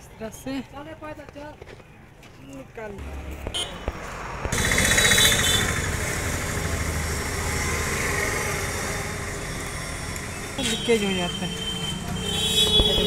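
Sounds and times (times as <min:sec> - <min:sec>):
vehicle engine running: 0:03.0 - 0:10.8.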